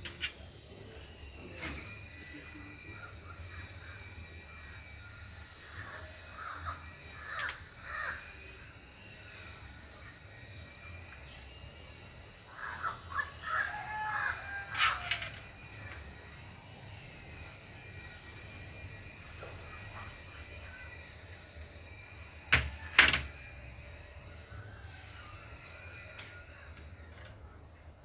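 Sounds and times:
crow-like caws: 0:05.6 - 0:08.4, 0:12.5 - 0:15.4.

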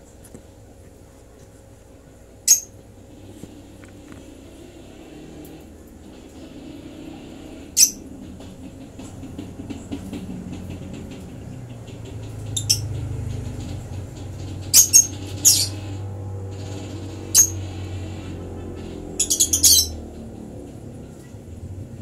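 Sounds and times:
baby bird begging squeaks: 0:02.5 - 0:02.7, 0:07.8 - 0:08.0, 0:14.7 - 0:15.8, 0:17.3 - 0:17.6, 0:19.2 - 0:20.0.

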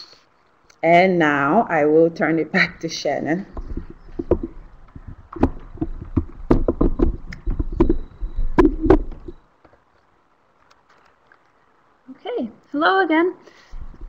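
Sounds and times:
microphone handling noise: 0:03.5 - 0:09.8, 0:13.7 - 0:14.0.

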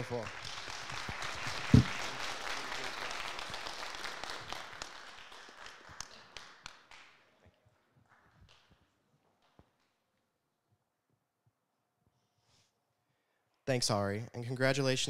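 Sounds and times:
audience applauding: 0:00.0 - 0:08.7
heavy low thump: 0:01.7 - 0:02.0.

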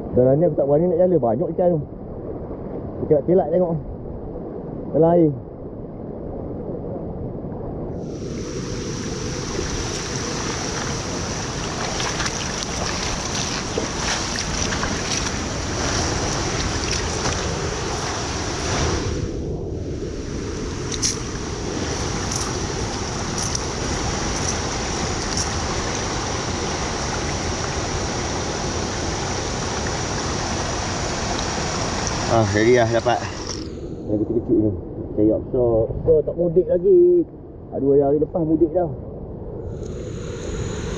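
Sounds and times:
wind on the microphone: 0:00.0 - 0:40.9
rushing water: 0:08.0 - 0:33.8.

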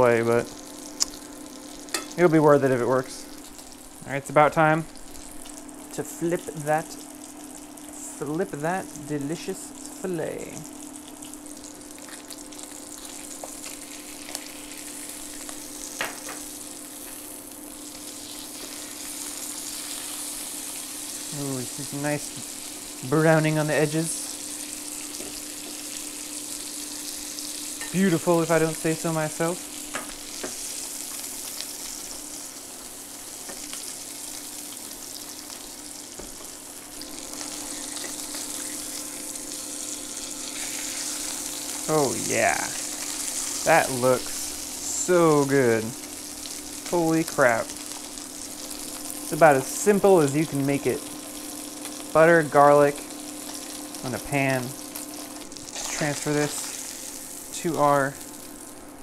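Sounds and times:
faint steady hum: 0:00.0 - 0:59.0
fish sizzling in a pan: 0:00.0 - 0:59.0.

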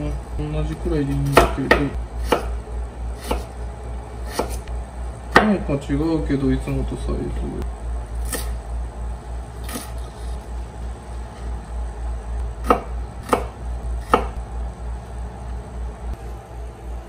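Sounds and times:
low steady hum: 0:00.0 - 0:17.0
knife chopping on wooden board: 0:01.2 - 0:02.6, 0:03.2 - 0:03.5, 0:04.2 - 0:04.6, 0:05.3 - 0:05.6, 0:12.6 - 0:14.4.

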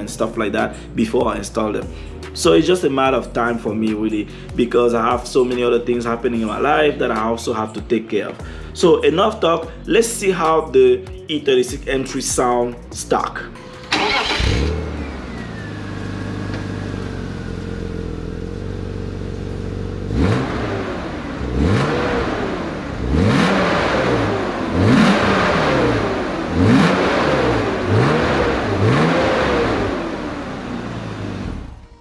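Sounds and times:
car engine idling and revving: 0:00.0 - 0:32.0.

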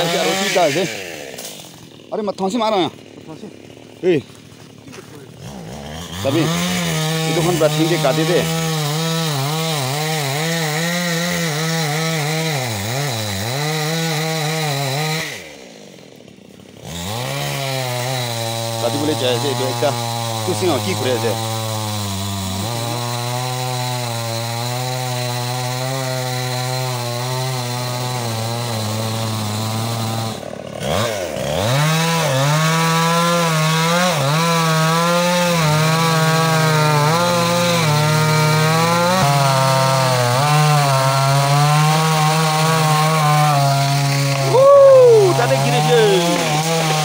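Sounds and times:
chainsaw engine running: 0:00.0 - 0:47.0.

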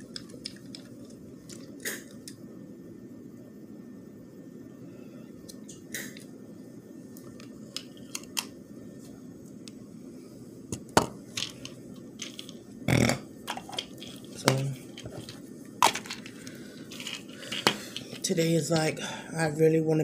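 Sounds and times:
handling clicks and crinkles: 0:00.0 - 0:02.4, 0:07.2 - 0:08.6, 0:10.8 - 0:12.7, 0:13.5 - 0:18.9
steady low hum: 0:00.0 - 0:20.0.

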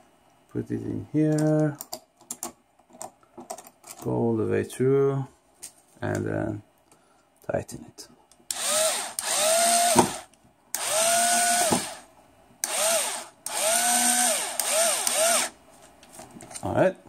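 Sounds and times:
power screwdriver whining: 0:08.5 - 0:12.0, 0:12.6 - 0:15.6.

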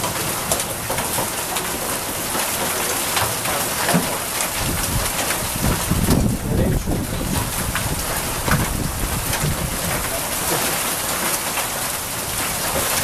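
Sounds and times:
hail falling: 0:00.0 - 0:13.0.

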